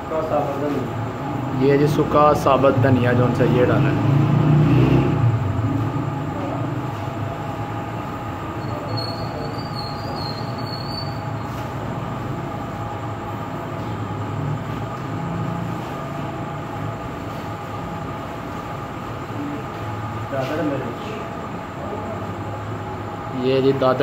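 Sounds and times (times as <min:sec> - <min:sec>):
machine hum: 0:00.0 - 0:24.0
faint high whine: 0:05.2 - 0:24.0.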